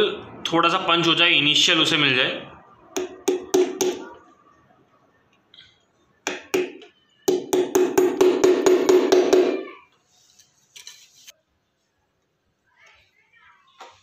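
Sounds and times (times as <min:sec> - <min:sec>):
hammer tapping a screw: 0:06.3 - 0:09.6.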